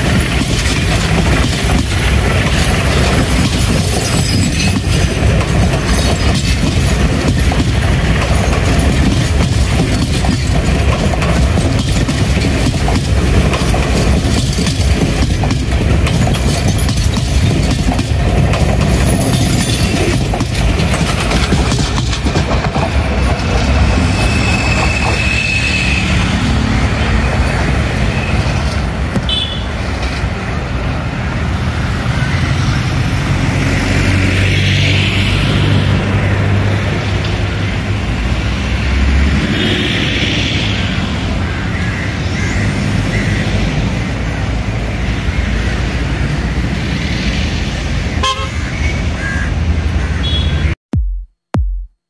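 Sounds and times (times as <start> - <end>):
train wheels clattering over joints: 0.0 - 25.5.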